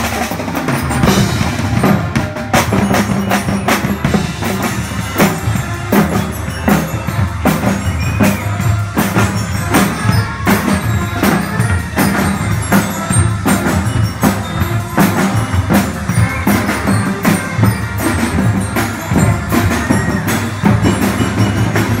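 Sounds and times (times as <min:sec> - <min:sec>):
drum kit with cymbals: 0:00.0 - 0:22.0
snare drums: 0:00.0 - 0:22.0
brass playing a tune: 0:00.9 - 0:22.0.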